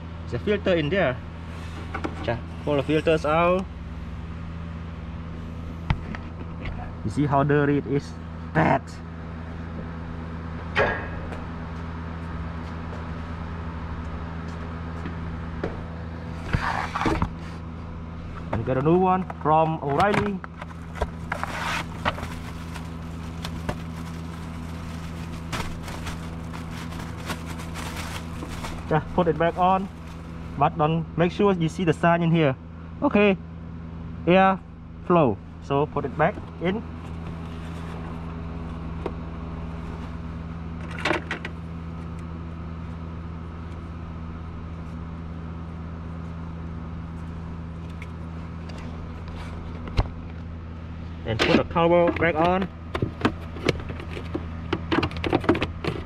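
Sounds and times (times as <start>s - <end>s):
low mechanical hum: 0.0s - 56.0s
air filter clicks and rustles: 51.3s - 56.0s.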